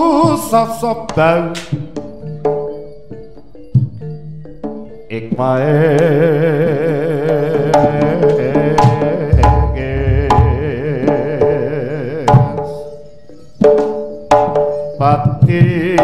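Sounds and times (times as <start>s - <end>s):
gamelan melody: 6.1s - 15.0s
sharp drum strokes: 8.8s - 11.7s
deep low boom: 9.4s - 11.2s.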